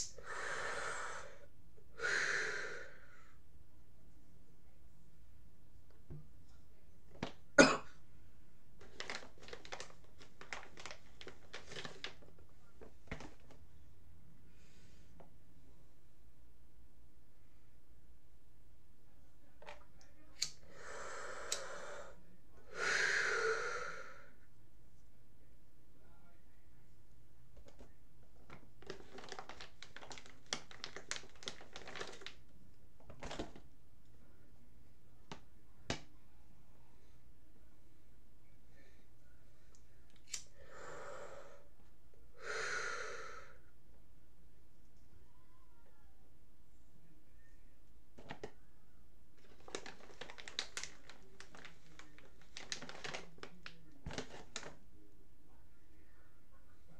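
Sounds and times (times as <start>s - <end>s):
breath out: 0.0s - 3.4s, 20.6s - 24.4s, 40.5s - 41.7s, 42.4s - 43.6s.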